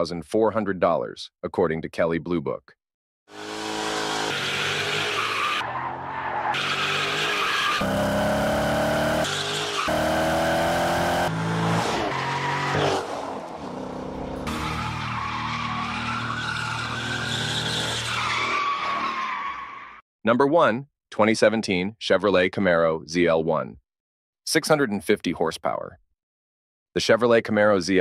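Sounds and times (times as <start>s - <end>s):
car engine revving: 3.3s - 15.1s
tires squealing: 3.3s - 20.0s.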